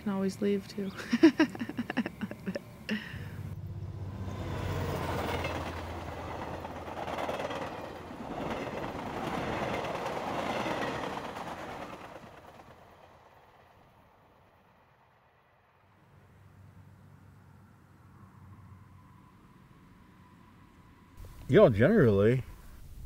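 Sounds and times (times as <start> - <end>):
train wheels rumbling on rail: 0.0 - 2.6, 3.2 - 14.0.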